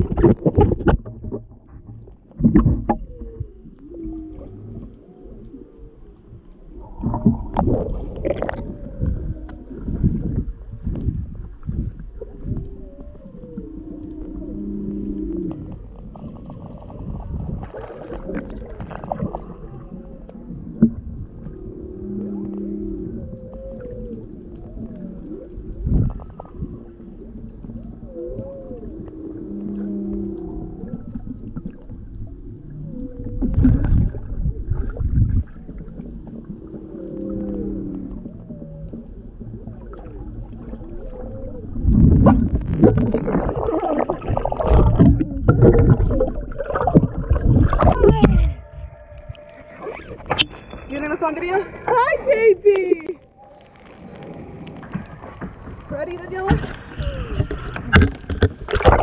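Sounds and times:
whale song underwater: 0.0s - 52.4s, 53.0s - 59.0s
low water rumble: 0.0s - 59.0s
water sloshing against camera: 0.0s - 59.0s
loud low whale call: 12.3s - 34.9s, 36.0s - 51.9s.

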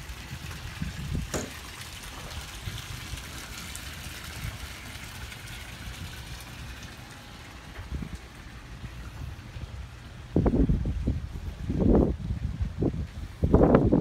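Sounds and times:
low wind rumble on microphone: 0.0s - 4.8s, 7.8s - 14.0s.

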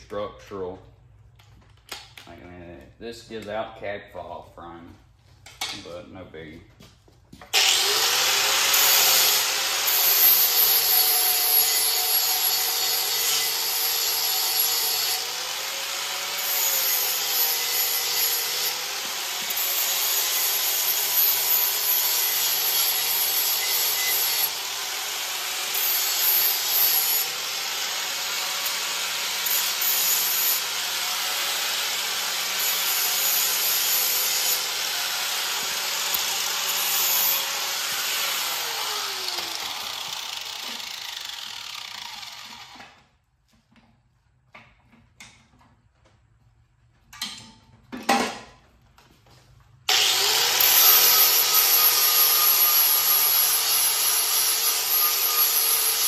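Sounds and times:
angle grinder grinding steel: 7.5s - 43.0s, 49.9s - 56.0s.

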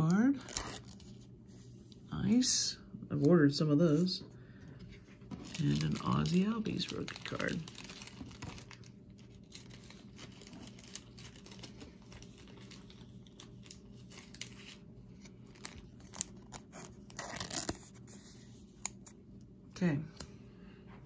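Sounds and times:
plastic card sleeve crinkling: 5.3s - 19.2s.

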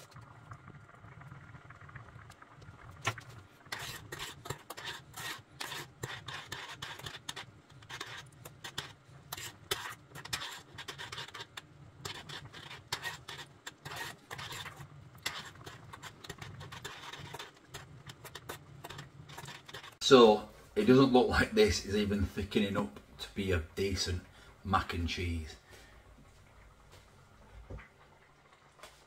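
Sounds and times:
metal spoon scraping saucepan: 3.7s - 20.0s.

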